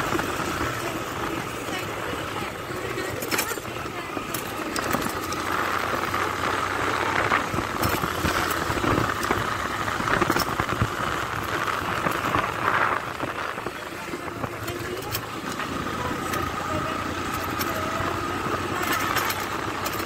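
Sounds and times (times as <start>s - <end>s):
motorcycle engine hum: 0.0s - 20.0s
wind rushing on microphone: 5.8s - 15.2s.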